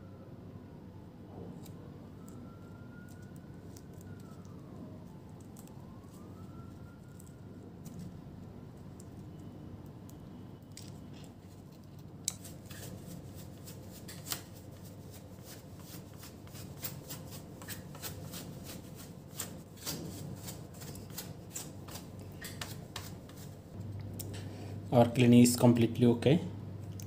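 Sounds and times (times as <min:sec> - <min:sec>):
paintbrush scratching circuit board: 0:12.4 - 0:23.7.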